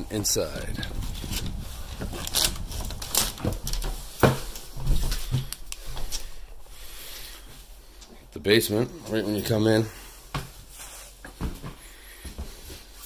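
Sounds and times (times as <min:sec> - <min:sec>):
footsteps: 0:00.4 - 0:08.2, 0:09.0 - 0:13.0
wooden knocks and scrapes: 0:01.0 - 0:06.2.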